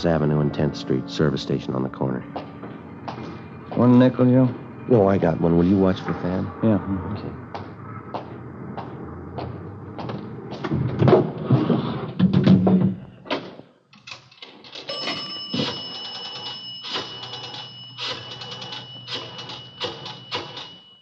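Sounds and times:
thin steady whine: 0:00.0 - 0:10.4.

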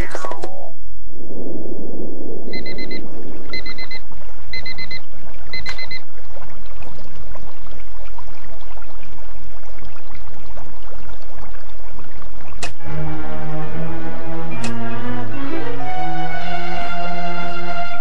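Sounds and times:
water bubbling and sloshing: 0:01.3 - 0:18.0
high electronic beeping: 0:02.5 - 0:05.0.

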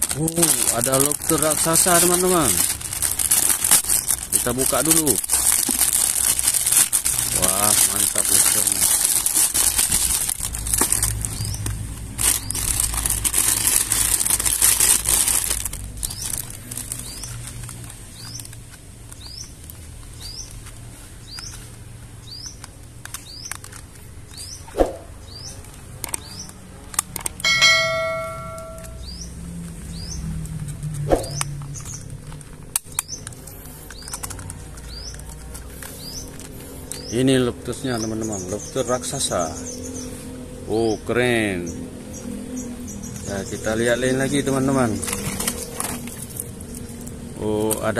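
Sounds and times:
plastic bag crinkling: 0:00.0 - 0:22.0, 0:22.6 - 0:24.6, 0:31.4 - 0:37.8, 0:43.7 - 0:47.9
bird chirping: 0:27.4 - 0:30.3
brief ringing tone: 0:27.5 - 0:29.0.

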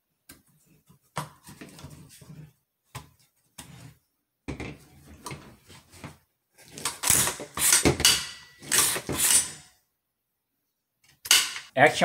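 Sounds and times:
metallic strokes of gun action: 0:07.0 - 0:09.7.

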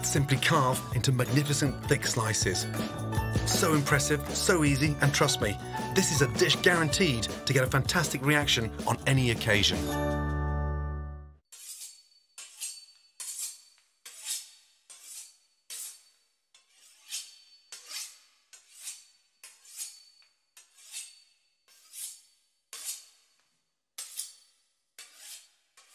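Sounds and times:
knife sawing through pastry crust: 0:11.5 - 0:23.4, 0:24.0 - 0:25.9.

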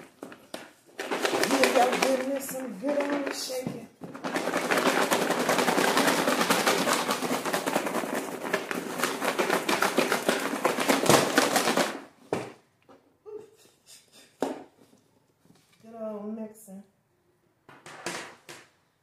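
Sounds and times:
soil rattling in shaken container: 0:00.9 - 0:12.1.

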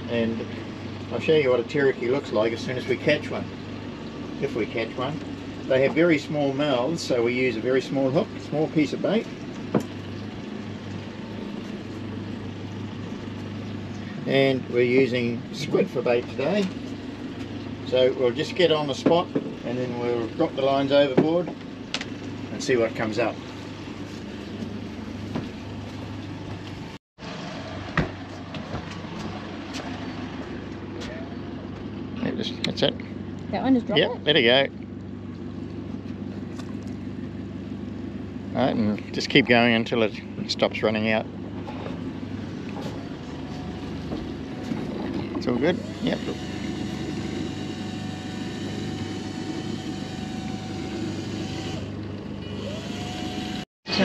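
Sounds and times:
outboard engine idling: 0:00.0 - 0:54.0
fishing reel spool whining: 0:43.2 - 0:53.6.

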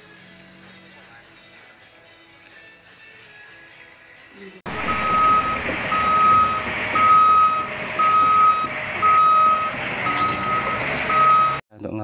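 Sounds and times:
excavator alarm beeping: 0:04.7 - 0:11.6
machine noise: 0:04.7 - 0:11.6.

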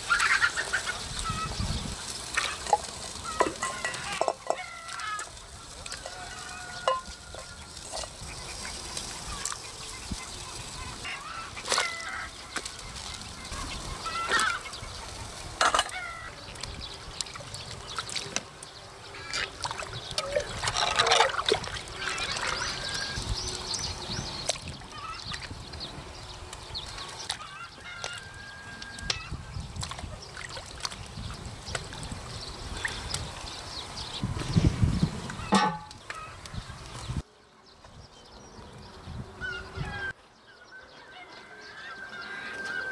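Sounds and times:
poultry calling: 0:00.0 - 0:01.6, 0:02.4 - 0:16.5, 0:20.2 - 0:23.3, 0:24.9 - 0:25.4, 0:26.9 - 0:29.5, 0:39.3 - 0:42.9
ingredients splashing into water: 0:19.3 - 0:23.1.

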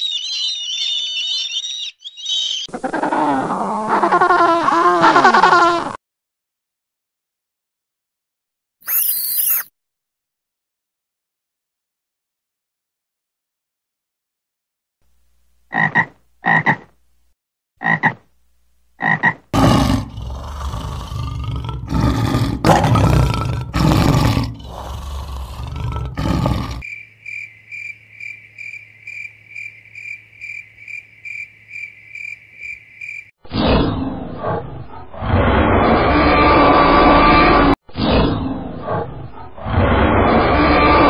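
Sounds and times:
high chirps: 0:00.0 - 0:02.7, 0:08.8 - 0:09.7
frog croaking: 0:15.7 - 0:16.9, 0:17.8 - 0:18.2, 0:19.0 - 0:20.6
dinosaur roar sound effect: 0:19.6 - 0:26.8, 0:33.6 - 0:41.0
lion roaring: 0:19.6 - 0:26.8.

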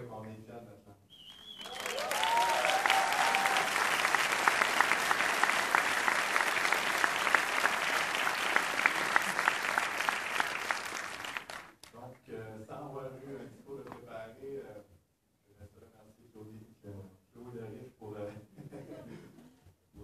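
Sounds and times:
audience applauding: 0:01.2 - 0:11.9.

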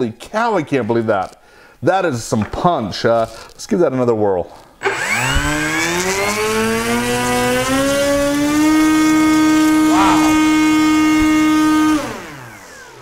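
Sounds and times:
electric motor and propeller whine: 0:04.8 - 0:13.0.

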